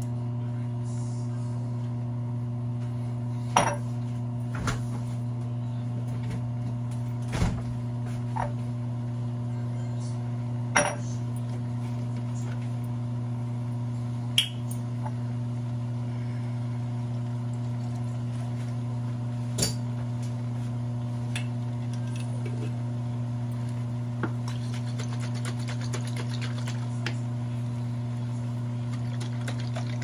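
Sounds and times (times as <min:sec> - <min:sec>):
kitchen appliance humming: 0:00.0 - 0:30.0.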